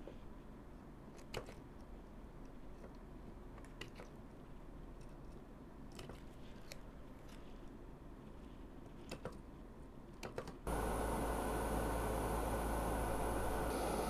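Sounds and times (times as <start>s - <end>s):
gas torch burning: 10.7s - 14.0s.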